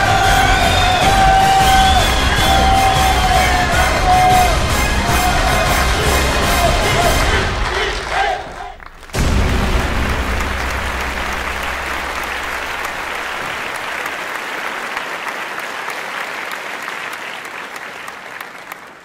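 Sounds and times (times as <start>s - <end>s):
crowd applauding: 0.0s - 19.0s
deep low rumble: 8.8s - 13.9s.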